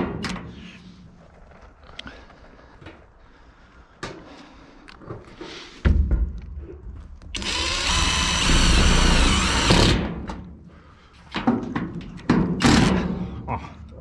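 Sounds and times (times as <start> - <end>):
impact driver driving screw: 7.4 - 10.2.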